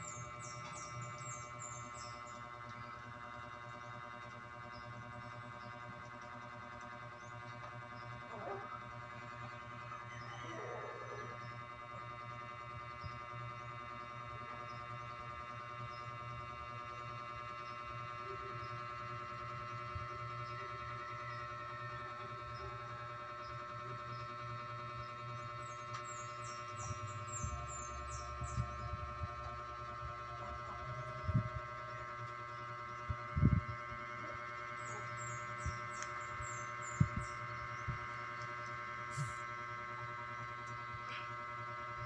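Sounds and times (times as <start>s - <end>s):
small bird chirping: 0.0s - 2.9s, 25.0s - 29.6s, 33.0s - 39.4s
electrical hum: 0.0s - 42.0s.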